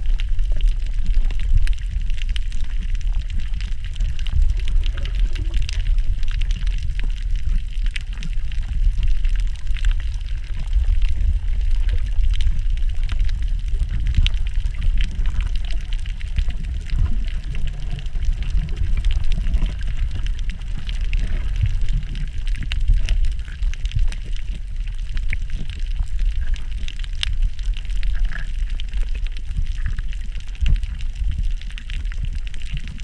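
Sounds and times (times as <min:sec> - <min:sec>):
faint clicks and crackles: 0:00.0 - 0:33.0
underwater rumble of water: 0:00.0 - 0:33.0.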